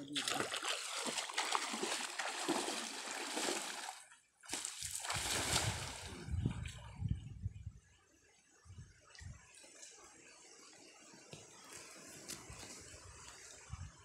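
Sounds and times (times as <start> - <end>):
water splashing and sloshing: 0.0 - 6.9.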